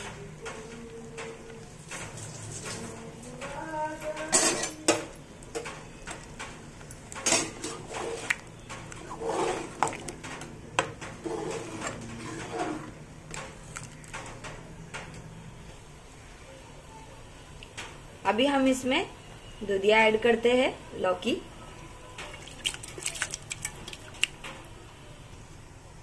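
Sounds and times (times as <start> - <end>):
metal ladle scraping pot: 9.0 - 10.2, 11.2 - 13.0.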